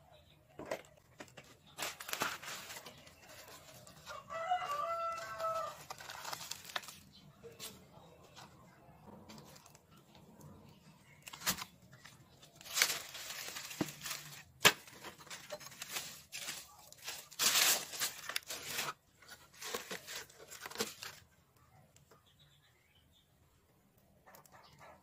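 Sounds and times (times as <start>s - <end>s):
plastic bottles crinkling: 0.6s - 7.8s, 9.2s - 21.3s
dry leaves rustling: 1.8s - 7.9s, 11.2s - 21.2s.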